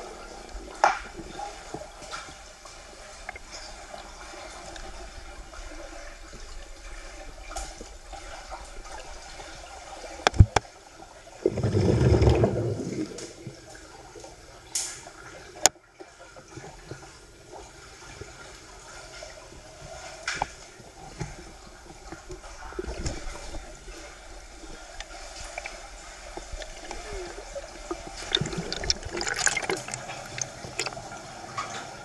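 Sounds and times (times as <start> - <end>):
muffled underwater water noise: 0.0 - 32.0
deep rush of water: 11.4 - 13.4, 24.6 - 32.0.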